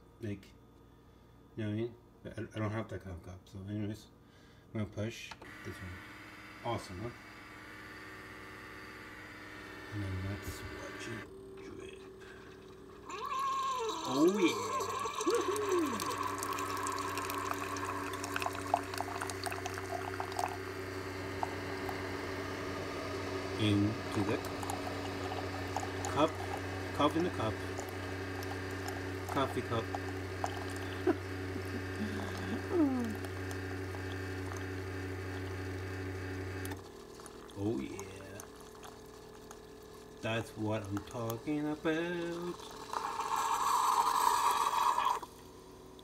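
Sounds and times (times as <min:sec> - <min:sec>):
coffee maker humming: 0:05.4 - 0:46.0
coffee pouring into mug: 0:12.0 - 0:45.4
small drips: 0:14.8 - 0:20.6, 0:36.6 - 0:41.4.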